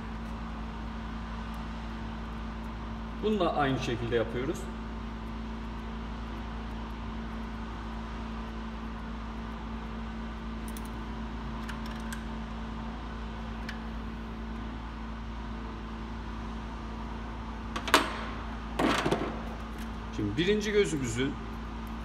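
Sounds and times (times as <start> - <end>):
mechanical hum: 0.0 - 22.0.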